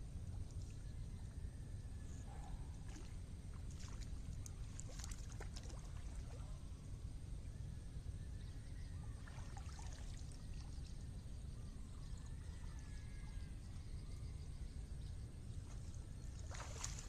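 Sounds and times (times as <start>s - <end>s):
steady low rumble: 0.0s - 17.0s
small splashes: 2.8s - 6.5s, 9.2s - 11.0s, 15.6s - 17.0s
water trickling off a net: 3.8s - 6.3s, 16.4s - 17.0s.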